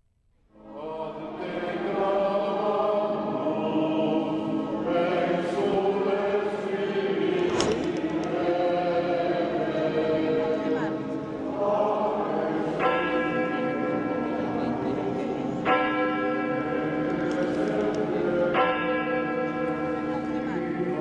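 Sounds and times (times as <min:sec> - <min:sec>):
choir singing sustained chords: 0:00.5 - 0:15.7, 0:16.4 - 0:18.6, 0:20.0 - 0:21.0.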